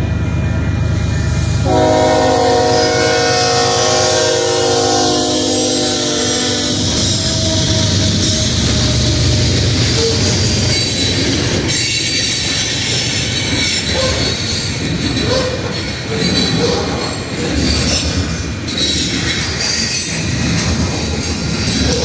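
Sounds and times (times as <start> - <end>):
train wheels rumbling on rails: 0.0 - 22.0
locomotive horn: 1.6 - 8.8
wheel squeals: 5.2 - 22.0.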